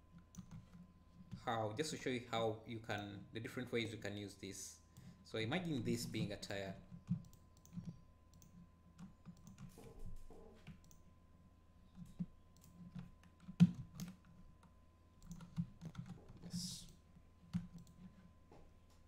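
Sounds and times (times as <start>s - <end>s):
keyboard keys clicking: 7.1s - 9.8s, 12.0s - 14.4s, 15.2s - 16.9s.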